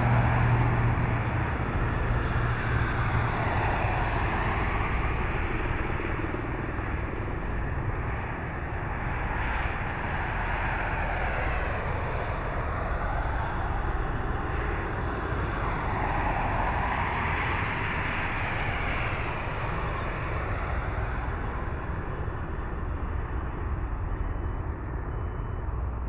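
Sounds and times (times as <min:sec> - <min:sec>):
jet engines roaring: 0:00.0 - 0:24.9
faint short high beeps: 0:06.1 - 0:09.5, 0:18.1 - 0:25.6.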